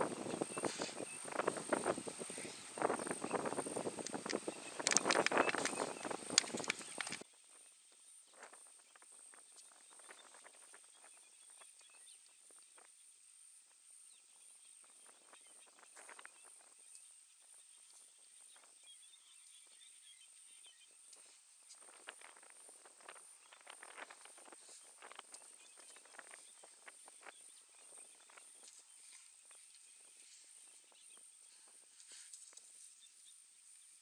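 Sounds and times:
faint chirps: 0.0 - 34.0
thin high-pitched whine: 0.0 - 34.0.

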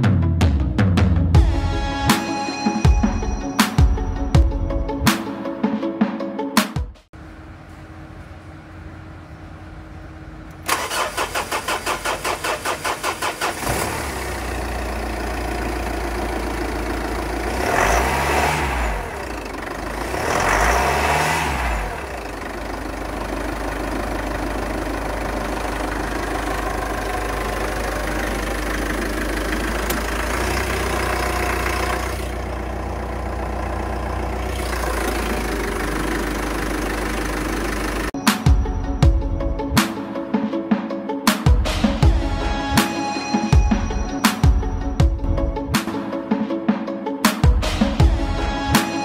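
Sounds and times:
diesel engine idling: 7.2 - 39.6
engine revving: 10.5 - 38.2
starter cranking engine: 10.5 - 38.2.

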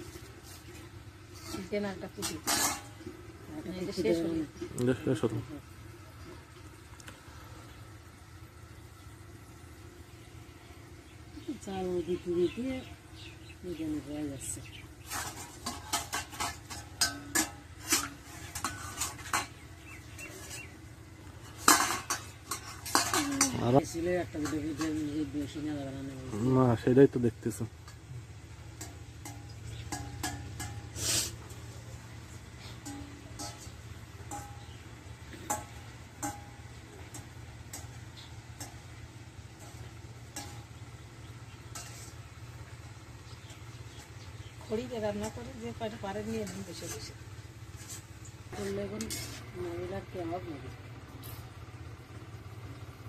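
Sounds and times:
low hum of stove and pan: 0.0 - 53.0
metal spoon clinking in steel bowl: 15.1 - 19.6, 21.4 - 25.6, 28.7 - 31.0, 32.6 - 39.0, 41.6 - 42.2.

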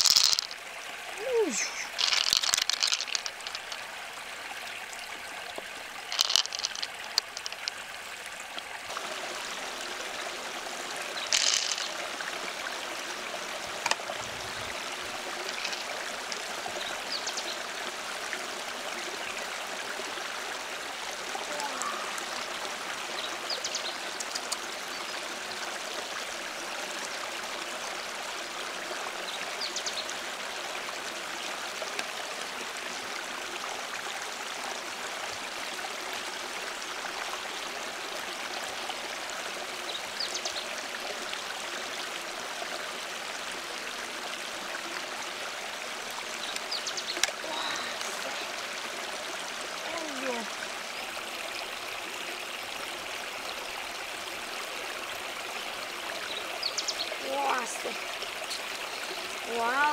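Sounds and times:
mussel shell clicks and scrapes: 0.0 - 0.6, 1.8 - 3.8, 6.1 - 7.8, 11.2 - 12.0, 15.4 - 15.9, 24.2 - 24.6
stream running over rocks: 0.0 - 59.9.

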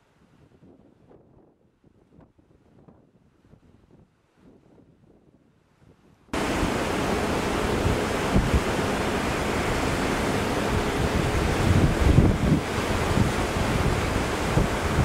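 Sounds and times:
wind buffeting microphone: 0.0 - 15.0
sea surf: 6.3 - 15.0.

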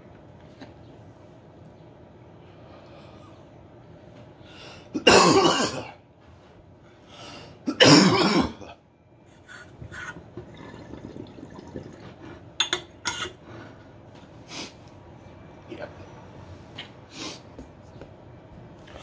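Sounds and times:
man coughing: 5.0 - 6.0, 7.7 - 8.7.

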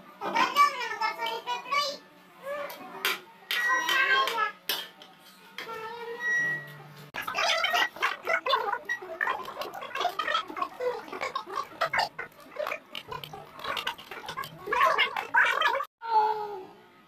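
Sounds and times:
person chewing wetly: 7.2 - 15.9.

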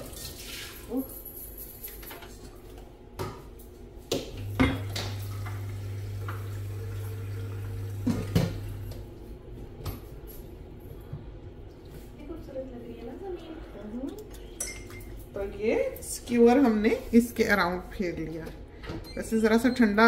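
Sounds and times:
water dripping: 4.4 - 9.0.

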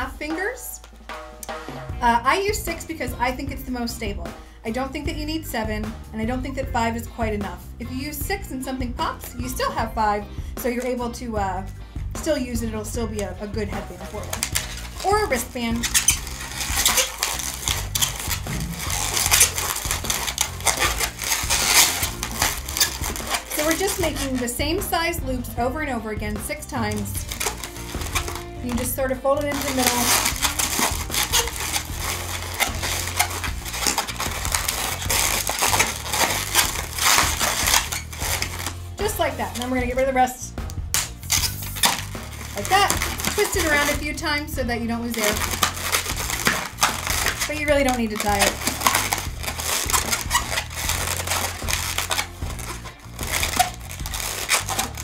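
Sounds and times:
balloon squeaking and crackling: 12.9 - 25.2, 26.2 - 55.0.

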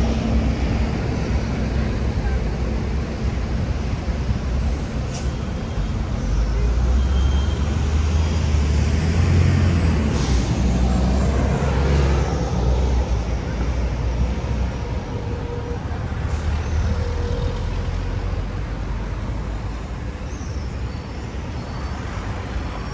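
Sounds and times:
road noise: 0.0 - 22.9
vehicles passing with engine rumble: 0.0 - 22.9.

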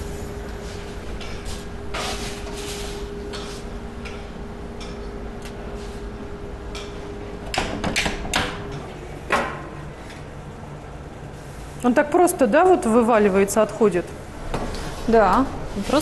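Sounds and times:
oven humming: 0.0 - 16.0
oven door and racks clacking: 6.7 - 9.7.

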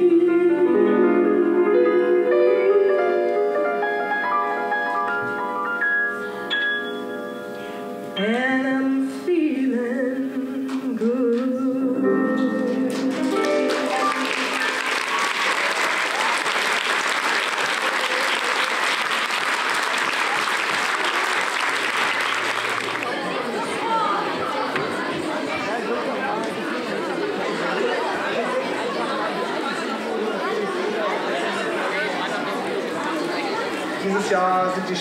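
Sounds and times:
woman singing: 0.0 - 3.6, 8.2 - 14.5
piano accompaniment: 0.0 - 8.9, 11.7 - 16.8
audience applause: 12.9 - 24.7.

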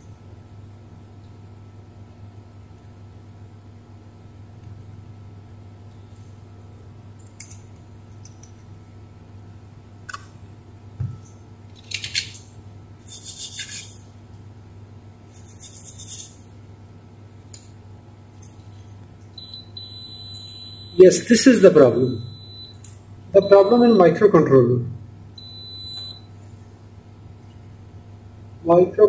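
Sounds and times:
low steady hum: 0.0 - 29.0
multimeter continuity beep: 19.4 - 24.3, 25.4 - 26.3.

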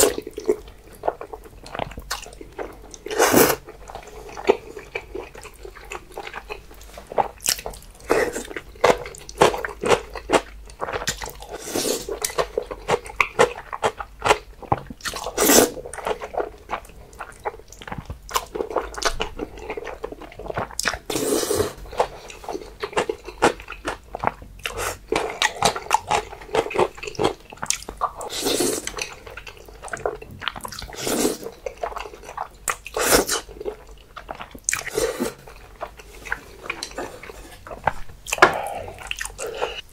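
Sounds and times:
chewing and mouth clicks: 12.1 - 21.1, 21.9 - 39.8.

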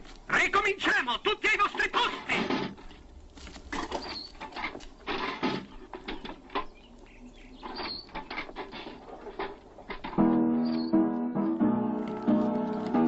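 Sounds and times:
baby carriage wheels rattling: 2.0 - 11.0
high squeak: 10.6 - 11.0.

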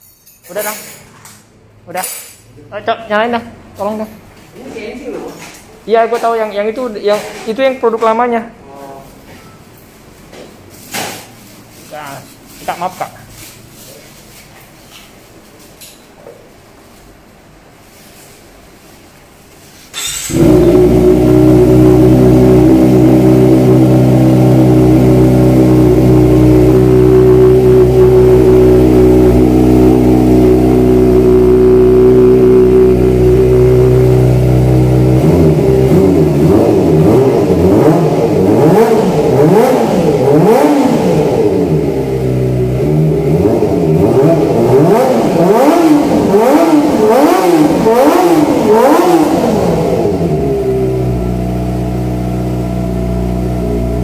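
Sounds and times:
motorcycle engine revving: 20.0 - 54.0.

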